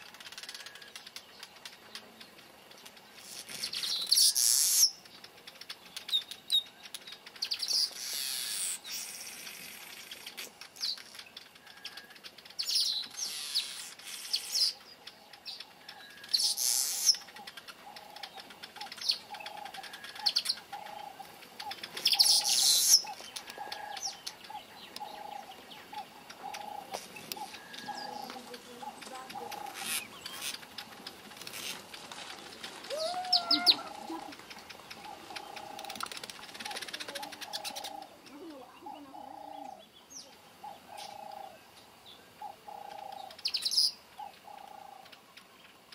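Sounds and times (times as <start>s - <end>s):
weaver birds harsh hissy calls: 7.7s - 14.8s, 15.8s - 21.2s, 22.0s - 30.8s, 32.8s - 39.8s.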